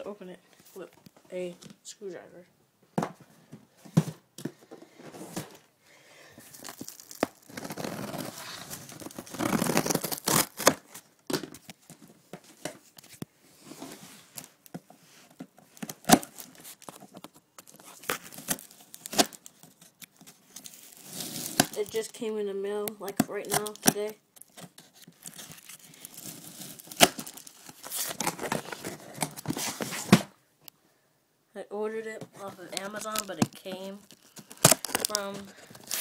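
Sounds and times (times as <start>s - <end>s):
screwdriver ripping tape and cardboard: 6.7s - 10.8s, 20.9s - 22.1s, 23.4s - 28.4s, 34.1s - 36.0s.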